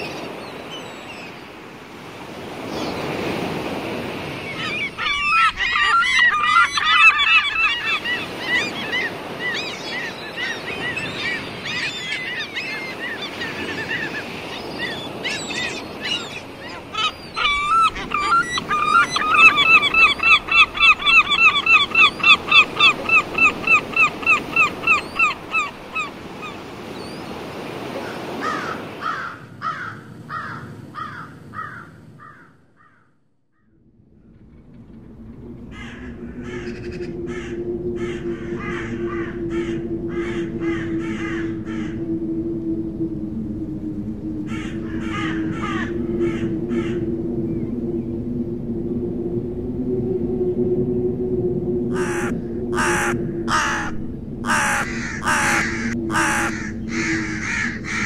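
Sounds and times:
gulls calling: 0.0 - 33.0, 35.2 - 42.4, 44.2 - 48.2, 51.7 - 58.0
gull laughing calls: 4.6 - 26.6, 44.5 - 47.1, 51.9 - 58.0.

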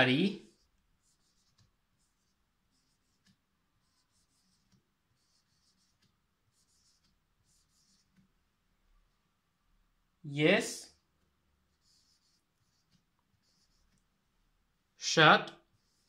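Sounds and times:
marker pen scratching on whiteboard: 0.0 - 8.4, 10.7 - 14.1, 15.5 - 16.0.

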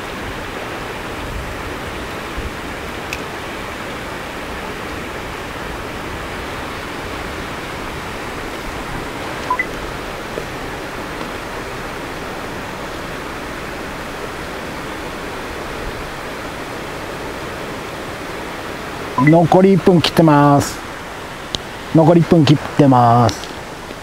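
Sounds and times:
rushing outdoor background noise: 0.0 - 24.0
high two-note chirp: 9.5 - 9.7, 19.2 - 19.6.

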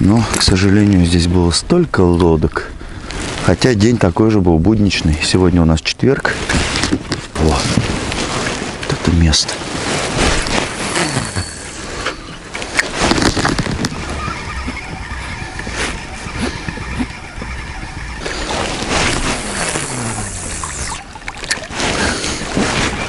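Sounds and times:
water sloshing: 6.4 - 23.0
boat motor running: 13.7 - 21.6.

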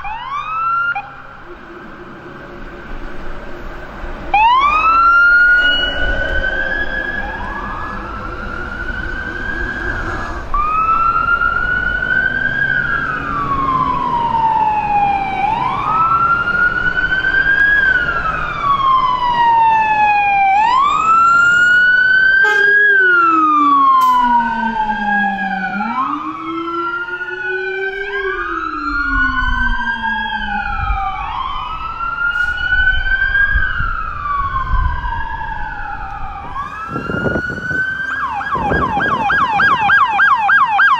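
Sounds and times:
diesel truck engine: 0.0 - 26.2
deep siren tone: 0.0 - 40.9
fire truck siren wailing: 0.0 - 40.9.

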